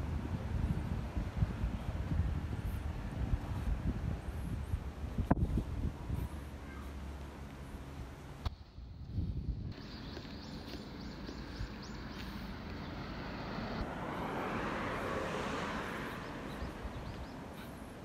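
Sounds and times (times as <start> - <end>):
car driving past: 11.8 - 17.5.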